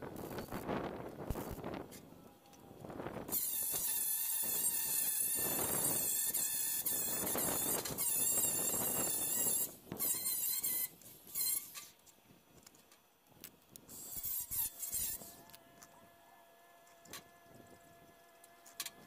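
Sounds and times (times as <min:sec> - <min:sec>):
angle grinder grinding steel: 0:03.3 - 0:11.9, 0:13.9 - 0:16.0.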